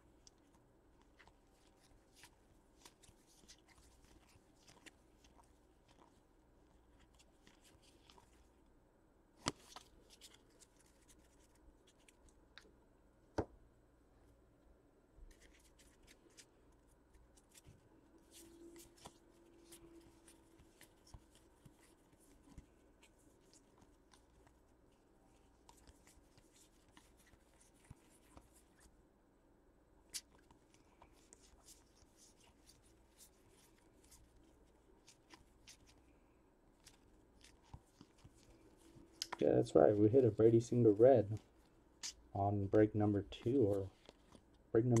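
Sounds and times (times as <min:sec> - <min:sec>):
trading cards rustling: 0:00.2 - 0:08.6, 0:09.4 - 0:12.3, 0:15.3 - 0:28.9, 0:36.8 - 0:45.0.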